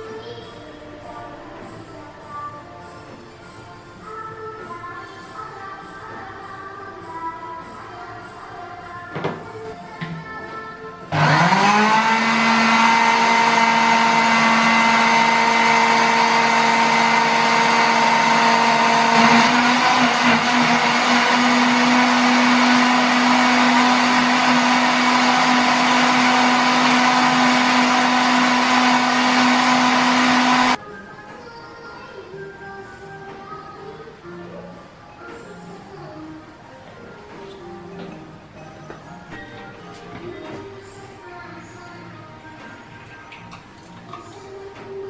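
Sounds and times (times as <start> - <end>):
blender motor whining: 11.1 - 30.8.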